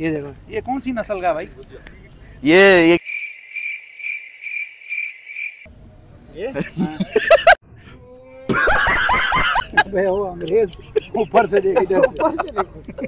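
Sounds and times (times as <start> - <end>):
men talking: 0.0 - 3.0, 6.2 - 7.4, 9.6 - 13.0
cricket chirping: 3.0 - 5.7
men laughing: 6.4 - 7.7, 8.4 - 13.0.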